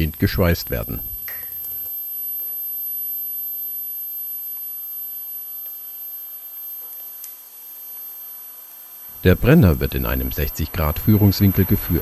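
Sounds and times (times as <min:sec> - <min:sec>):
welding arc hissing: 0:06.8 - 0:12.0.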